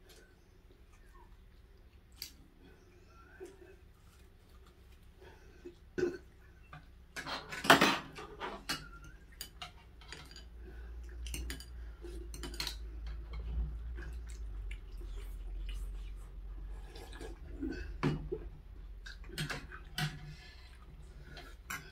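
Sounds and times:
cutlery and dishes clattering: 7.2 - 10.5, 11.3 - 13.2.

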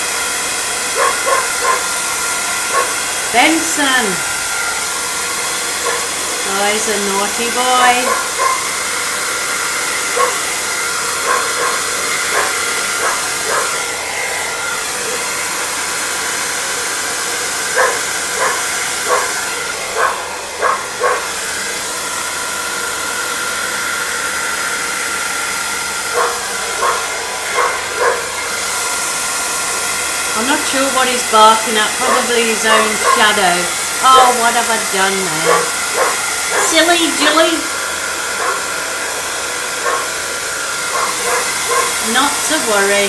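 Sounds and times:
hairdryer blowing: 0.0 - 43.0
dog barking: 1.0 - 1.9, 2.7 - 3.0, 5.8 - 6.1, 8.0 - 8.7, 10.2 - 10.4, 11.2 - 13.8, 17.8 - 21.3, 26.1 - 28.3, 32.0 - 33.3, 35.4 - 36.8, 38.4 - 38.7, 39.8 - 40.2, 40.9 - 42.0.

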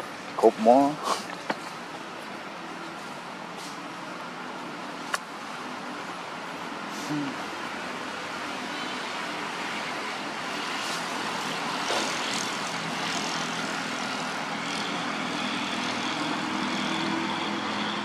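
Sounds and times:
engine drone: 0.0 - 18.0
broad hiss: 1.0 - 1.4.

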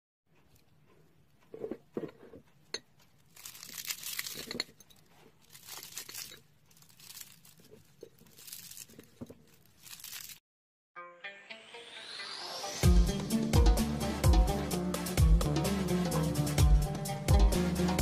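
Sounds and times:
flaky pastry crackling as torn: 3.0 - 10.4.

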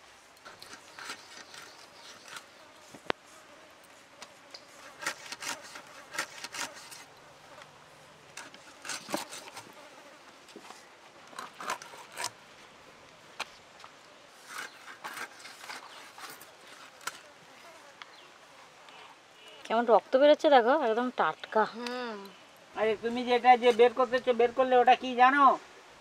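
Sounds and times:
fish cutting and scraping on blade: 4.7 - 7.1, 8.4 - 9.7, 11.4 - 12.4, 14.4 - 17.2.

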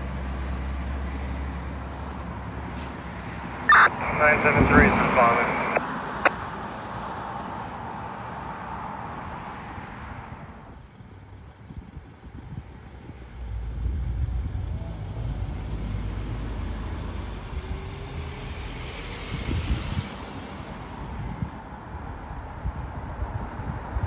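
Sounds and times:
cars driving past: 0.0 - 24.0
wind rumbling on microphone: 10.2 - 24.0.

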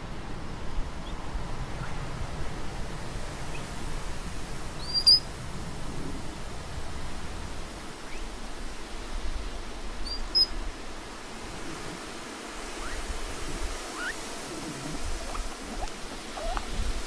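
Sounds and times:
outdoor hiss and rumble: 0.0 - 17.0.

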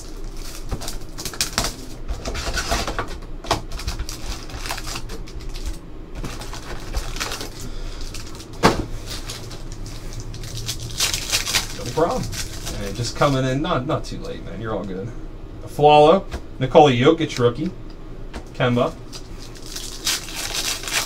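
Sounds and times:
plastic wrap and cardboard crinkling: 0.0 - 13.5, 19.0 - 21.0.

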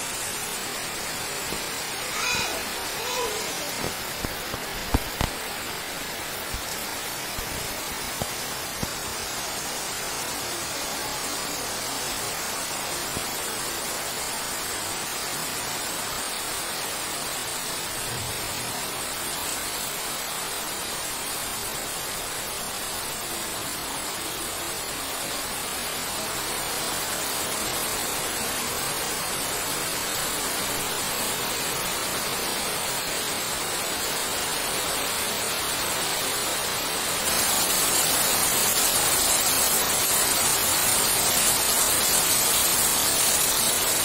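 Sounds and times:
heavy rain on leaves: 0.0 - 44.0.

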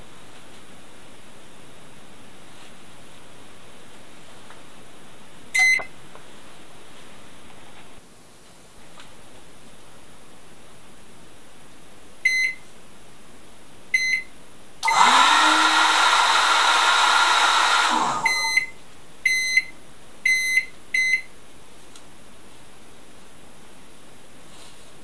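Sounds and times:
microwave timer beeps: 5.6 - 5.9, 12.2 - 12.6, 14.0 - 15.9, 17.0 - 21.3
hair dryer motor running: 14.8 - 18.6.

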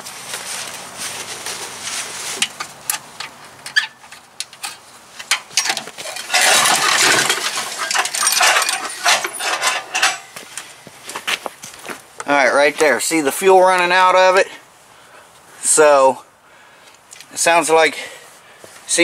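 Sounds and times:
metallic clicks and clinks: 3.7 - 10.3
engine turning over: 6.0 - 10.2.

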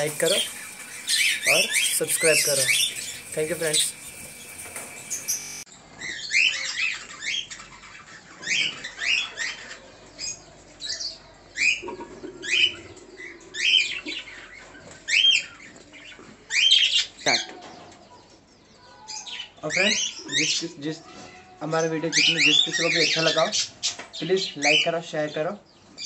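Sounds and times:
budgerigars chirping: 0.0 - 15.7, 22.1 - 25.4.

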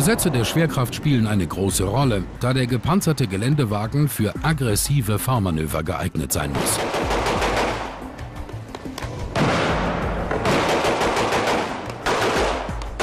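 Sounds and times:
background music: 0.0 - 13.0
automatic gunfire bursts: 6.6 - 8.0, 10.4 - 13.0.

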